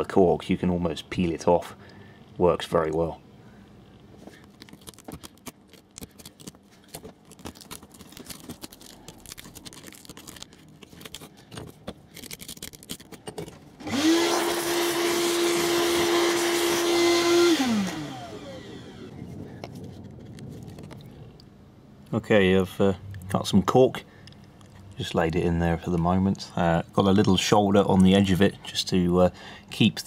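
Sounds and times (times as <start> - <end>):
small vacuum cleaner whine: 13.8 - 19.2.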